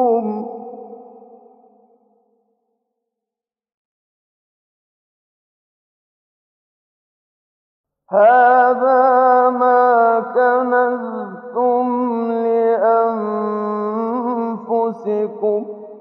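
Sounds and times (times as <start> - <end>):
man chanting melodically: 8.1 - 15.7.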